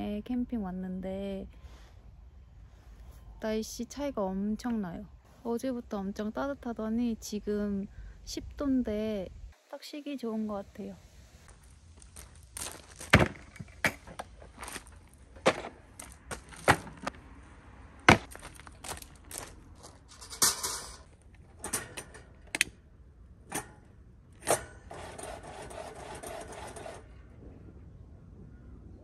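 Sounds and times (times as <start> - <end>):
footsteps on gravel: 11.4 - 17.2, 18.1 - 21.1
camping gear knocking on gravel: 12.6 - 17.2, 18.1 - 21.1
steady rustle: 18.1 - 22.6.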